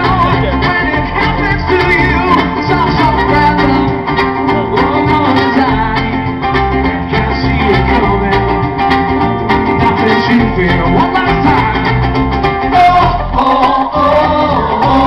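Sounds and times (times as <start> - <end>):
live folk-pop band playing: 0.0 - 15.0.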